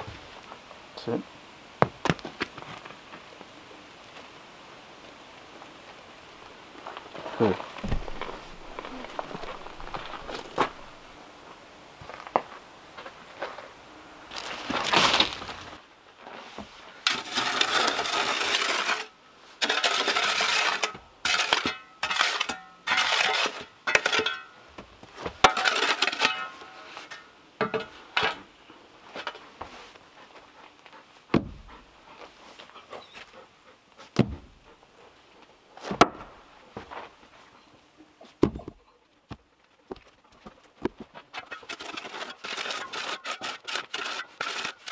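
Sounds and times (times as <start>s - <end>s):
shovel scraping gritty soil: 7.0s - 11.2s, 14.3s - 24.5s, 25.4s - 28.5s, 41.4s - 44.9s
logs knocking on ground: 7.8s - 11.0s, 31.3s - 31.7s, 34.2s - 34.6s.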